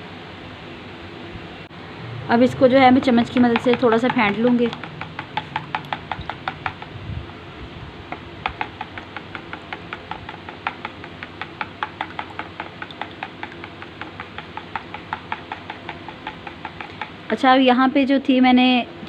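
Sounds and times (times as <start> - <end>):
metal spoon beating eggs in bowl: 2.7 - 6.9, 8.1 - 17.2.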